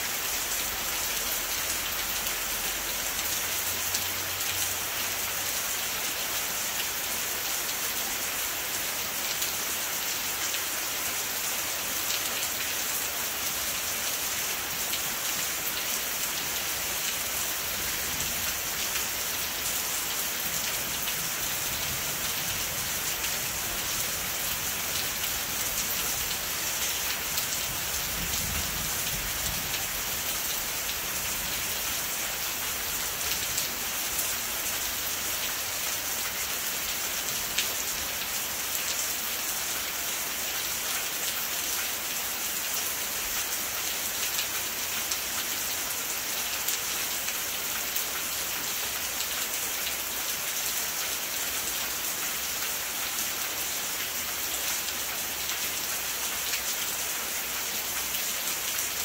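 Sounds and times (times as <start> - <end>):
steady rain hissing: 0.0 - 59.0.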